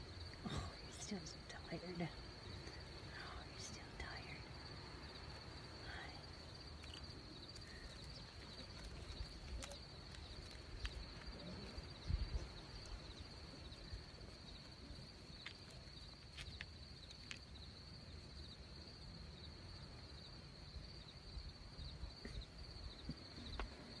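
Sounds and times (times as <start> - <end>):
crickets chirping: 0.0 - 24.0
low rumble on microphone: 10.8 - 14.2.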